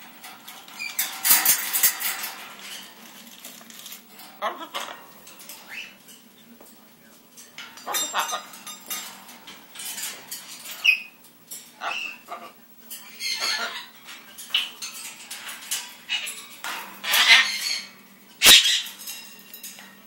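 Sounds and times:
parrot squawking: 0:04.4 - 0:05.0, 0:05.6 - 0:06.0, 0:07.8 - 0:08.6, 0:11.8 - 0:14.8, 0:16.0 - 0:16.4, 0:17.0 - 0:19.0.

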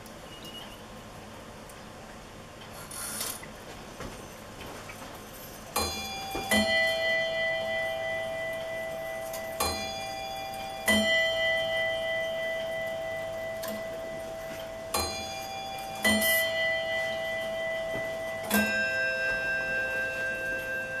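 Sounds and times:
clock striking two-note chime: 0:05.8 - 0:21.0.

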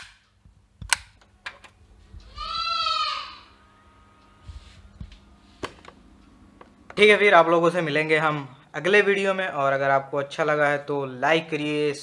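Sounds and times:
goat bleating: 0:02.2 - 0:03.6.

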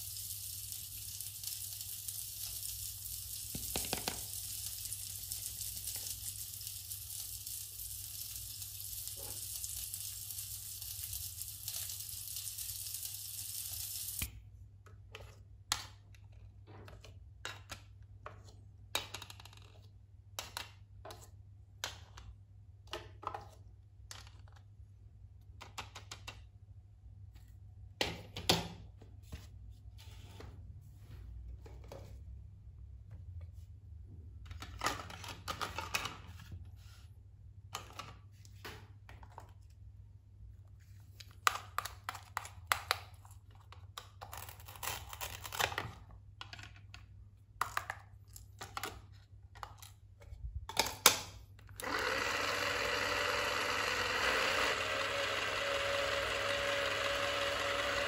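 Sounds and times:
toy grill sizzle hiss: 0:00.0 - 0:14.3.

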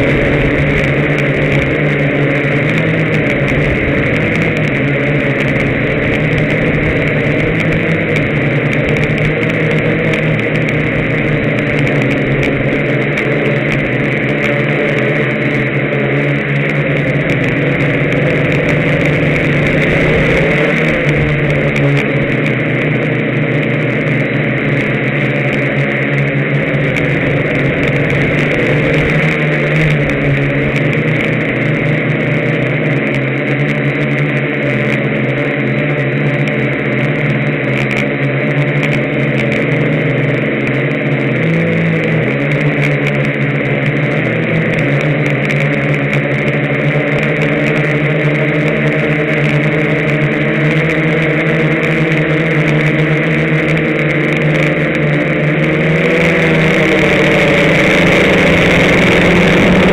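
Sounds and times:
propeller hiss: 0:00.0 - 0:32.4, 0:52.4 - 0:59.9
drone motors droning: 0:00.0 - 0:59.9.

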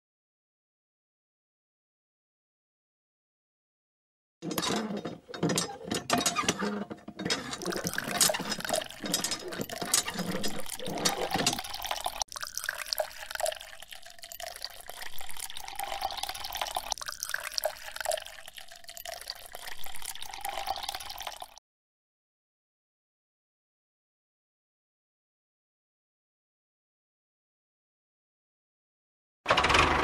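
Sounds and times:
hand pump lever working: 0:04.4 - 0:12.2
water pouring and splashing: 0:04.6 - 0:21.6.

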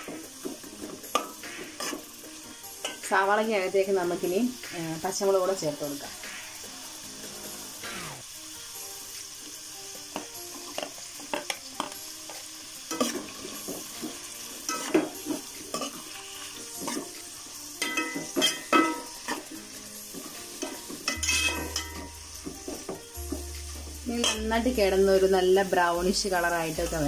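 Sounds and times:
onions sizzling in oil: 0:00.0 - 0:27.0
metal spoon scraping a pot: 0:21.1 - 0:22.1.

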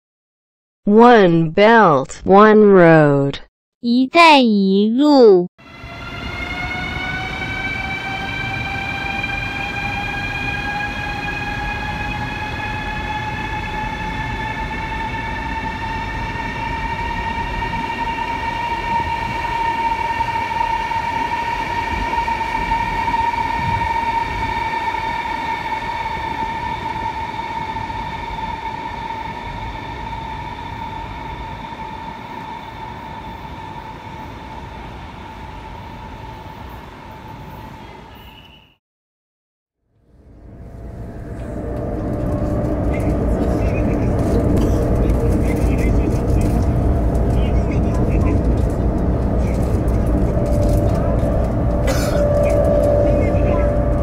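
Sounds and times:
train rumbling on rails: 0:05.6 - 0:38.7, 0:40.0 - 0:54.0
train motor whine: 0:40.0 - 0:54.0.

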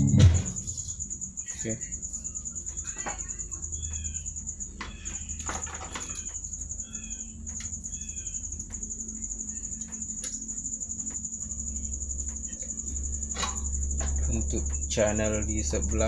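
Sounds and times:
low electrical hum: 0:00.0 - 0:16.0
high pulsing trill: 0:06.2 - 0:16.0.

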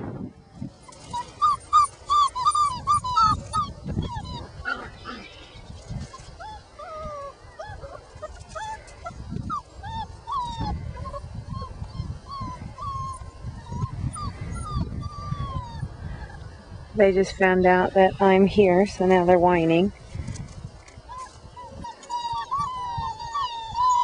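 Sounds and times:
puppies whimpering: 0:00.8 - 0:18.4, 0:21.0 - 0:24.0.

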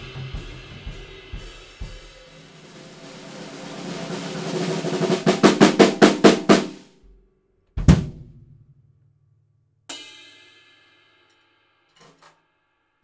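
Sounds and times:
bass drum and cymbal hit: 0:00.0 - 0:06.8
cymbal strike ringing: 0:09.9 - 0:11.9.

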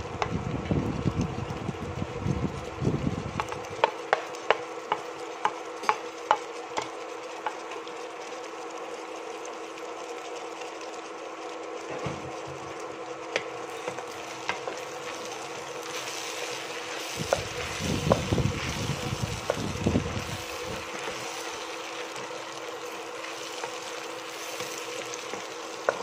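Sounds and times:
steady hum: 0:00.0 - 0:26.0
vegetables sizzling in a pot: 0:00.0 - 0:26.0
wooden spatula stirring: 0:03.4 - 0:26.0.

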